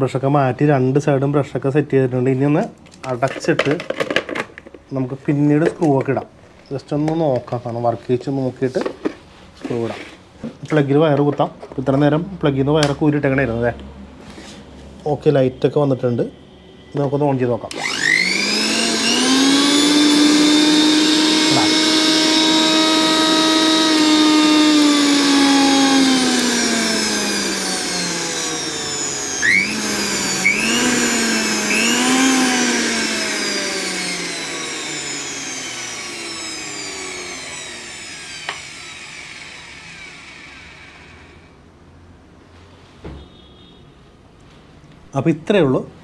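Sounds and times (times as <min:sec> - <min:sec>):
mixer grinder motor whining: 0:17.7 - 0:41.7.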